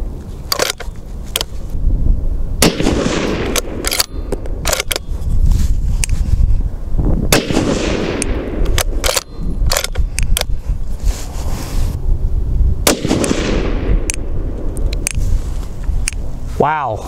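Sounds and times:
rifle bolt clicks: 0:00.5 - 0:01.6, 0:02.6 - 0:05.2, 0:07.4 - 0:10.6, 0:12.9 - 0:15.2, 0:15.8 - 0:16.2
rifle shots with rolling echo: 0:02.6 - 0:05.1, 0:07.3 - 0:10.1, 0:12.8 - 0:15.0.

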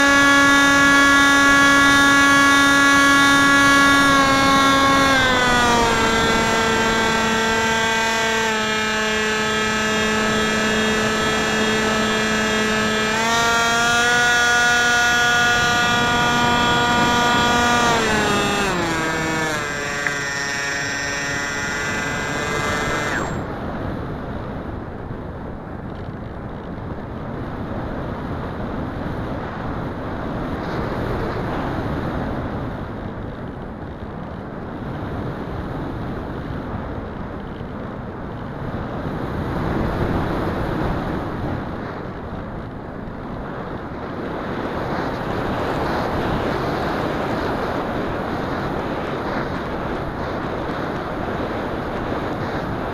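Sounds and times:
electric motor propeller whine: 0:00.0 - 0:23.7
wind rushing over microphone: 0:00.0 - 0:52.9.

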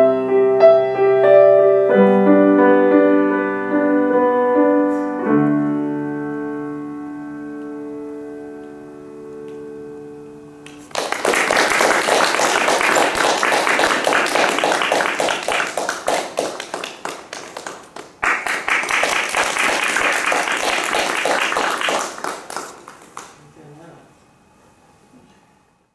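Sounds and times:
piano chord ringing: 0:00.0 - 0:11.0
audience applauding: 0:10.6 - 0:23.5.

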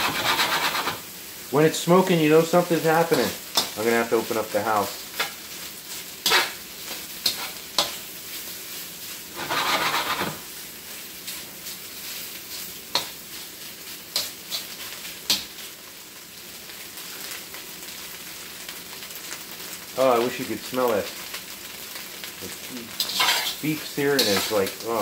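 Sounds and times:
metal spatula scraping a wok: 0:00.0 - 0:01.0, 0:06.2 - 0:08.1, 0:09.3 - 0:10.4, 0:14.1 - 0:15.5, 0:22.9 - 0:24.7
beef sizzling in a wok: 0:00.0 - 0:25.0.

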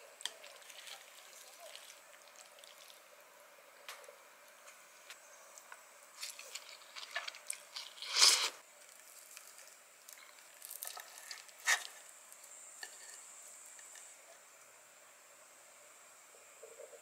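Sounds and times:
wet squishing of noodles: 0:00.1 - 0:03.1, 0:05.5 - 0:13.1.

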